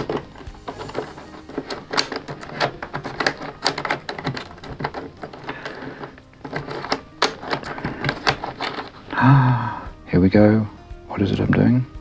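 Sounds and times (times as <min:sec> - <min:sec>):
wooden puzzle pieces clicking: 0:00.0 - 0:09.4.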